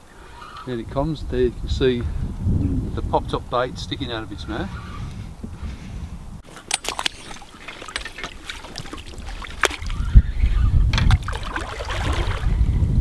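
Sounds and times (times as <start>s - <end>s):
wind rumble on microphone: 0.6s - 6.5s, 8.8s - 13.0s
fish splashing: 6.6s - 10.2s, 11.1s - 12.6s.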